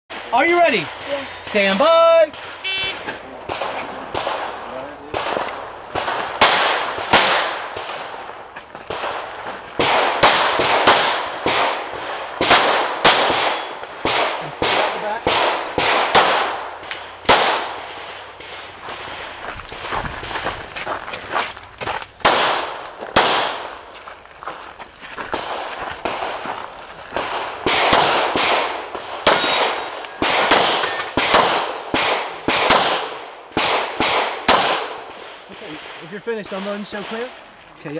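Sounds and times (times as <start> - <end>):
pistol shots with echo: 2.3 - 8.3, 8.9 - 19.4, 22.2 - 23.8, 25.3 - 26.5, 27.2 - 37.4.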